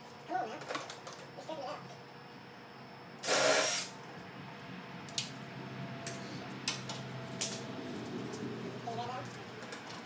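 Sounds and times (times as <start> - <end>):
short hissing burst: 3.2 - 4.0.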